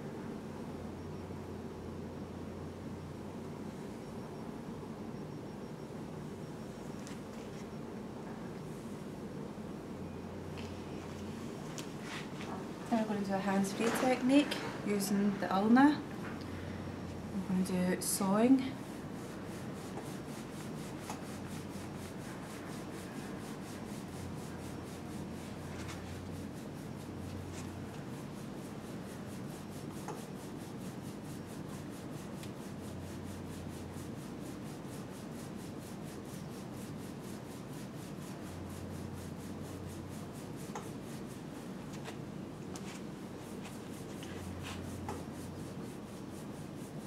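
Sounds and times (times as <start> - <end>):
skin rubbing against skin: 18.2 - 47.0.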